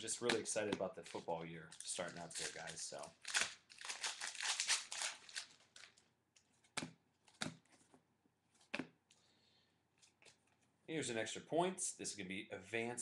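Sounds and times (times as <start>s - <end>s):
foil pack tearing and crinkling: 1.8s - 6.0s.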